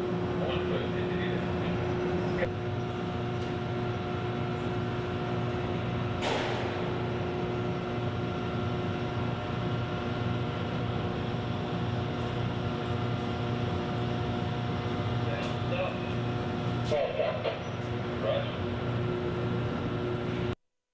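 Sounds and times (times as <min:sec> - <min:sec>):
industrial machinery hum: 0:00.0 - 0:20.6.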